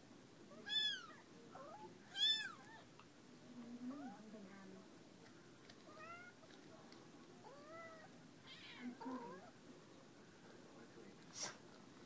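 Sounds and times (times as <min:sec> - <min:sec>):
kitten mewing: 0:00.6 - 0:02.9.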